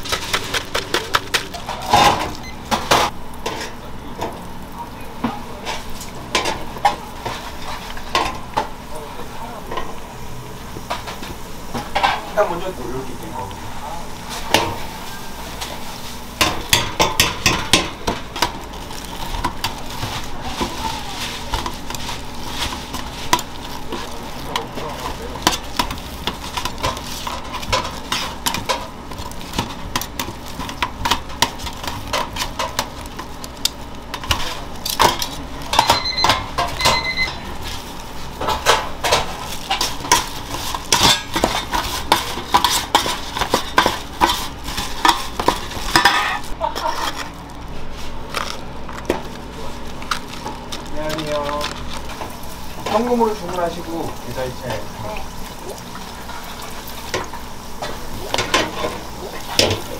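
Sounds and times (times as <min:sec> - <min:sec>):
utensils clattering against pans: 0:00.0 - 0:04.4, 0:05.2 - 0:09.0, 0:09.6 - 0:10.0, 0:10.8 - 0:47.4, 0:50.2 - 0:59.9
electronic beeps: 0:35.8 - 0:37.4.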